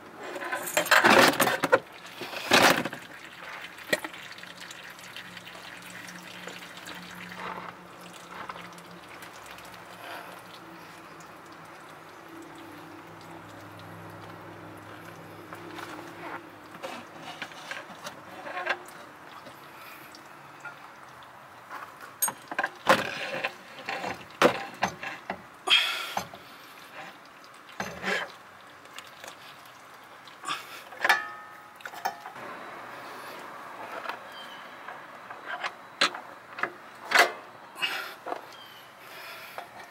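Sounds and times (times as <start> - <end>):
metallic clunks and scrapes: 33.8 - 37.5.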